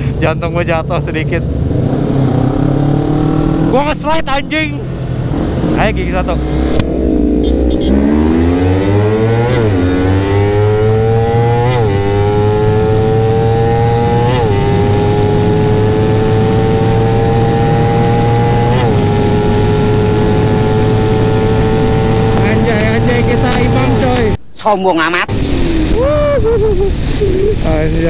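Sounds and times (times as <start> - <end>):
motorcycle engine accelerating: 0.0 - 24.4
wind noise: 25.3 - 28.0.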